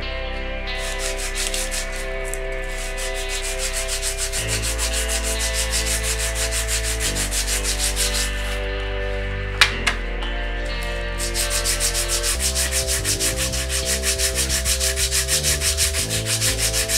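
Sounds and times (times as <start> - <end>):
brake pad scraping on sandpaper: 0.8 - 8.6, 11.2 - 16.9.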